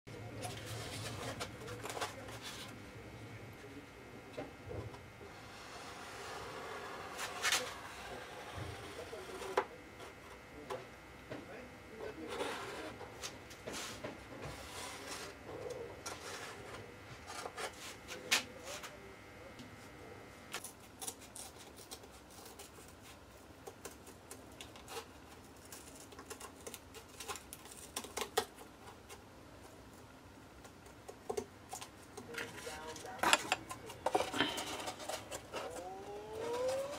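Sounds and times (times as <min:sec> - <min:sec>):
cardboard rubbing: 0:05.3 - 0:10.2.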